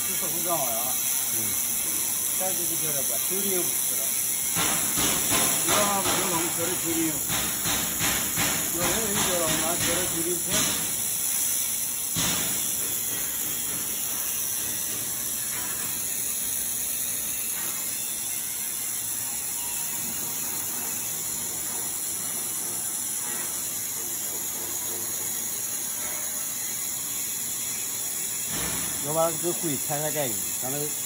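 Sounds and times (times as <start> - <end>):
laser welder hissing: 0.0 - 31.0
mechanical clatter: 3.3 - 18.1
knock: 7.3 - 10.8.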